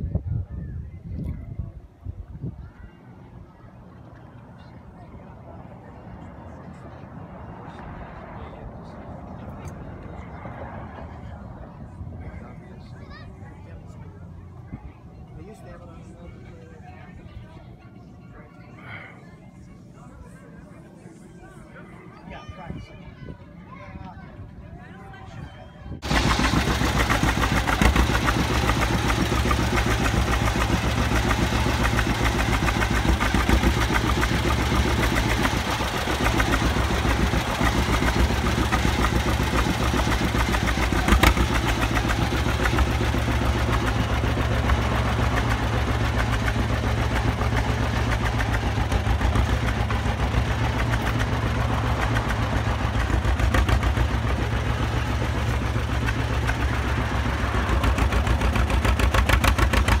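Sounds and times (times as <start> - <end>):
tractor engine running: 26.0 - 60.0.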